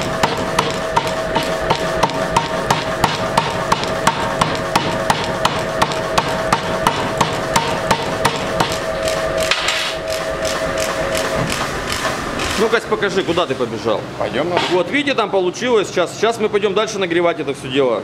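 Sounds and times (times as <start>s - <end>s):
power hammer striking metal: 0.0s - 12.8s
machine hum: 0.0s - 14.3s.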